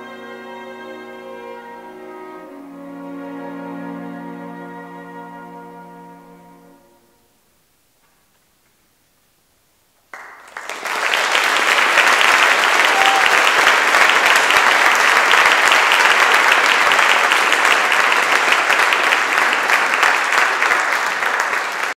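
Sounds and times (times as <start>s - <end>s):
audience applauding: 10.1s - 22.0s.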